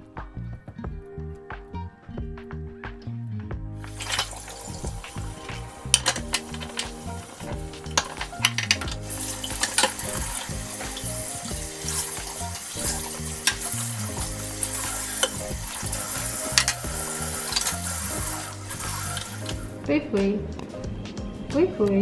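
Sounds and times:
soft background music: 0.0 - 22.0
tap water running: 3.8 - 19.8
pan clinking: 3.9 - 19.7.

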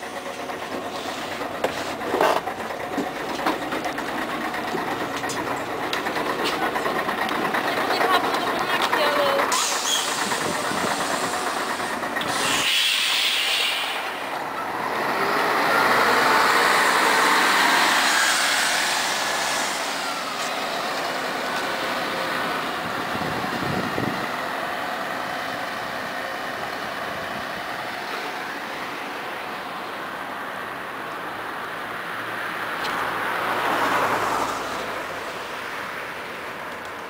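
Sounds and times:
bus diesel engine accelerating: 0.0 - 37.0
air brake hiss: 9.5 - 14.2.

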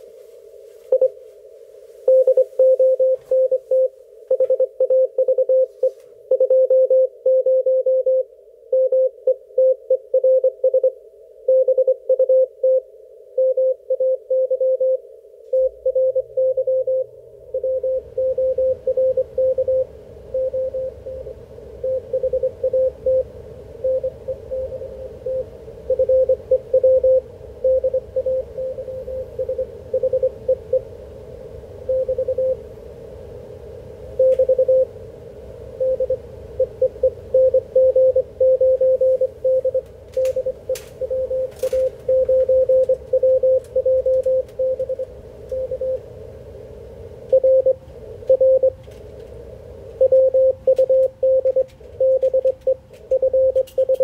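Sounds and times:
receiver noise: 0.0 - 54.0
morse code tone: 0.9 - 1.2, 2.1 - 8.2, 13.4 - 30.9, 31.9 - 32.6, 34.2 - 34.9, 35.8 - 46.0, 47.3 - 48.8, 50.0 - 54.0.

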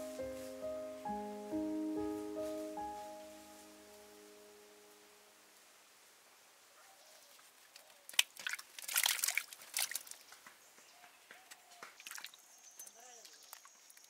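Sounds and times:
hands swishing in water: 7.8 - 10.2
limes splashing into water: 7.8 - 10.3, 11.9 - 12.4.

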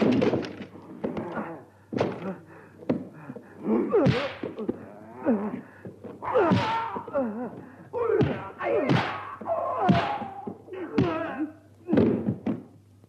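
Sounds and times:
shrill battle cries and yelps: 6.2 - 11.6.

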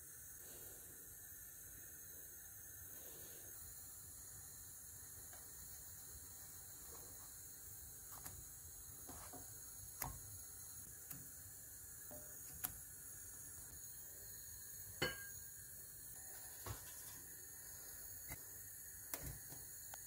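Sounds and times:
faint steady hiss: 0.0 - 20.0
pot lid clinking: 15.0 - 15.4.

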